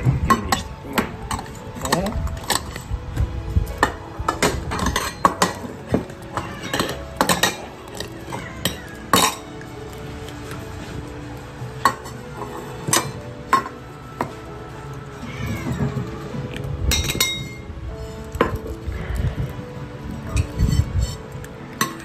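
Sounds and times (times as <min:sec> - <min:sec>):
food dishes clinking: 0:00.0 - 0:02.9, 0:03.8 - 0:09.7, 0:11.8 - 0:14.4, 0:15.6 - 0:17.7.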